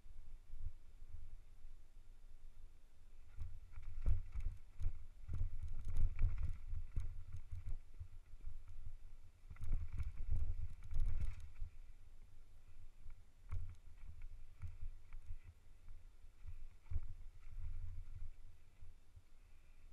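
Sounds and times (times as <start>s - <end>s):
mountain bike rattling: 3.8s - 7.8s.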